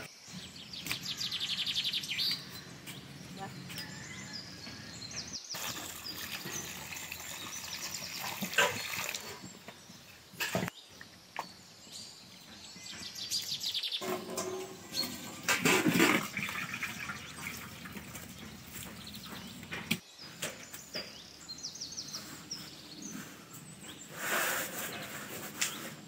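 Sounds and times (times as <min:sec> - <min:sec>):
birds chirping: 0:00.0 - 0:26.0
water splashing into a colander: 0:05.6 - 0:09.6, 0:14.0 - 0:18.9.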